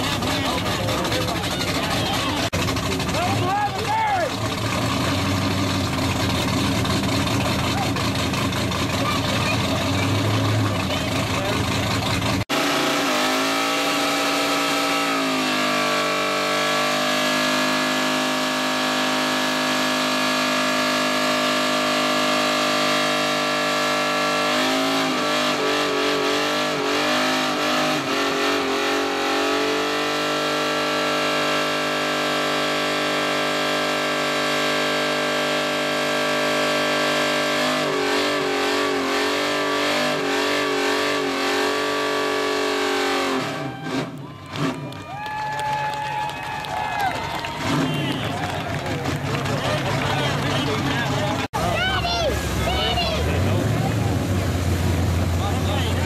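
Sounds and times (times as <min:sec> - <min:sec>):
car engine at high revs: 0:00.0 - 0:45.0, 0:47.5 - 0:56.0.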